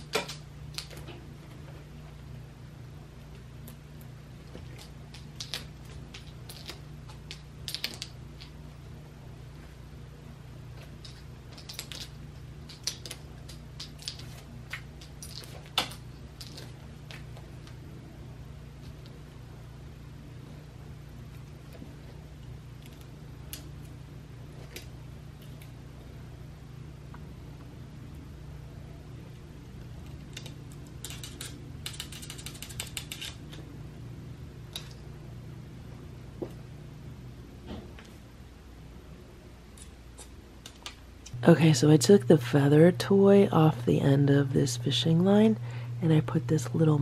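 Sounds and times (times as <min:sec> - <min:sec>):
steady low hum: 0:00.0 - 0:47.0
toy clicks and rattles on tile: 0:11.0 - 0:16.7, 0:30.3 - 0:33.6.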